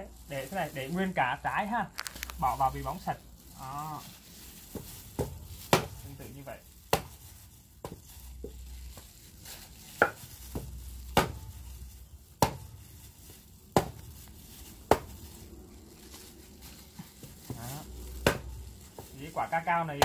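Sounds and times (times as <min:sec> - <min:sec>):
hammer knocking on cacao pods: 0:04.7 - 0:06.2, 0:06.9 - 0:07.2, 0:07.8 - 0:08.6, 0:10.0 - 0:11.6, 0:12.4 - 0:12.7, 0:13.7 - 0:14.1, 0:14.8 - 0:15.2, 0:17.2 - 0:19.1.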